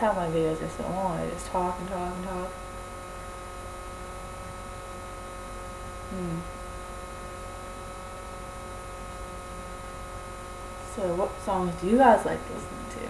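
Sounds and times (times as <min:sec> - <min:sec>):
electrical mains hum: 0:00.0 - 0:13.0
person humming mm: 0:06.1 - 0:06.6.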